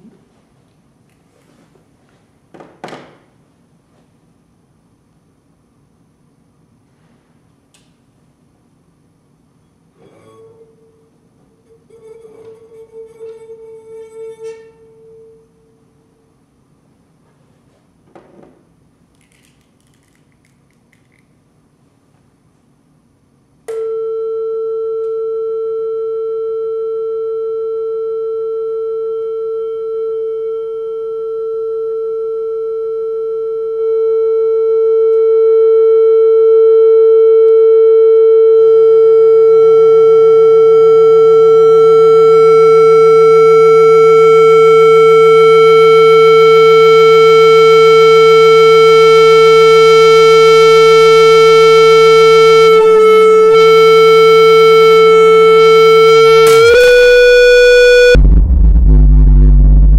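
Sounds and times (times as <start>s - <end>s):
low buzz: 8.5s - 17.2s, 25.9s - 59.9s
loudspeaker sine tone: 9.5s - 16.5s, 23.7s - 59.9s.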